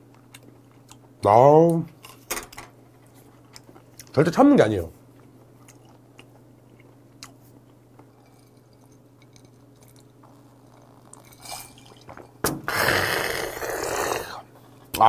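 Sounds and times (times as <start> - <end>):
faint steady hum: 0.0 - 15.0
chewing with wet mouth clicks: 0.1 - 1.1, 3.0 - 4.2, 5.2 - 11.3
person gulping a drink: 8.3 - 14.5.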